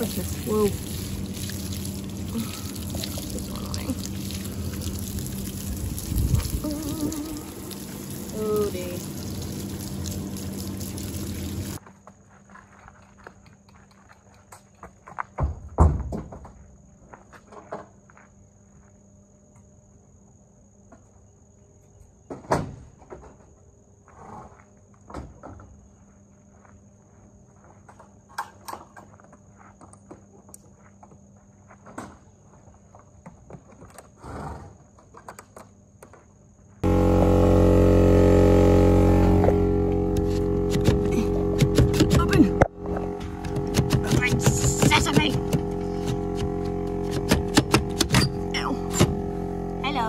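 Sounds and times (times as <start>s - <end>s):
horse hooves thumping on metal: 40.2s - 49.2s.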